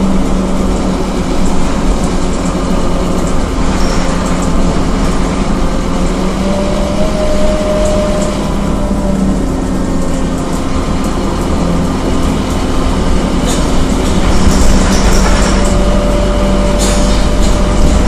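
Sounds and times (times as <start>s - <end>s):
bus diesel engine drone: 0.0s - 18.0s
high steady whine: 0.0s - 18.0s
road noise: 0.0s - 18.0s.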